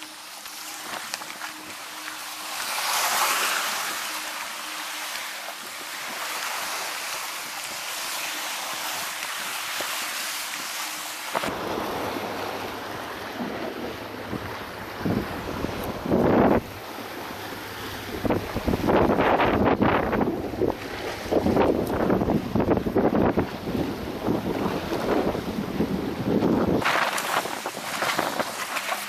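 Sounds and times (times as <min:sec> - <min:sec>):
waves washing over rocks: 0:00.0 - 0:29.0
wind buffeting microphone: 0:11.3 - 0:29.0.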